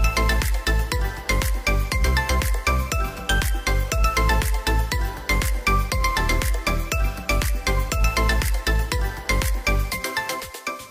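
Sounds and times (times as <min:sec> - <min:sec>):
fast beat music with deep bass: 0:00.0 - 0:10.9.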